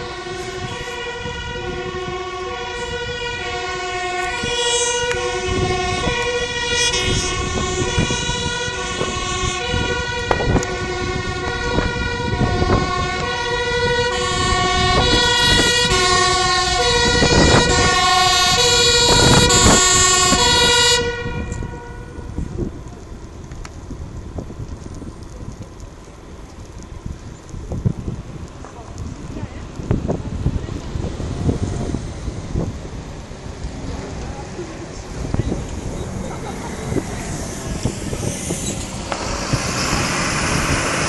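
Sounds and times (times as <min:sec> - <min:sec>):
two-tone siren: 0:00.0 - 0:22.6, 0:36.8 - 0:41.0.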